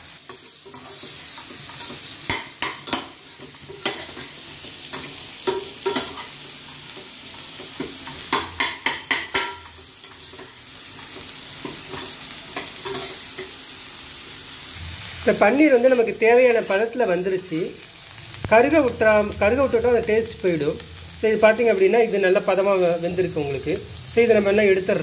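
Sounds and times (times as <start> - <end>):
frying sizzle: 0.0 - 25.0
metal spatula scraping a pan: 0.1 - 6.4, 8.1 - 10.6, 11.8 - 13.6.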